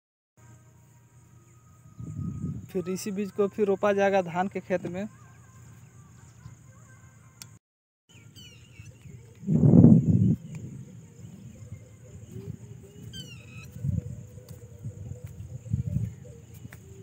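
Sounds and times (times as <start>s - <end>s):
high insect drone: 0.4s - 7.6s, 8.4s - 17.0s
bird chirping: 8.1s - 17.0s
microphone rumble: 8.9s - 17.0s.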